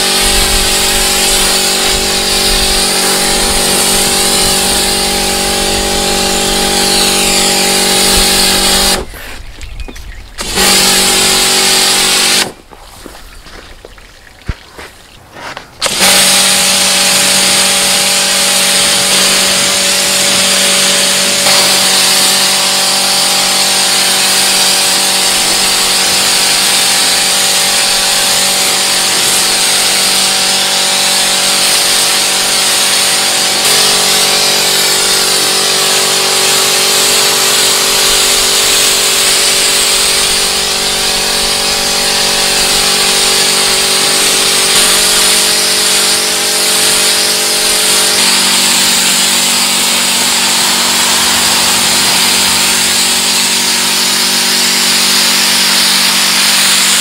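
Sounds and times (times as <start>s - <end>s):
water jet hissing on car: 0.0s - 9.2s, 10.4s - 13.2s, 15.8s - 57.0s
pressure washer motor hum: 0.0s - 57.0s.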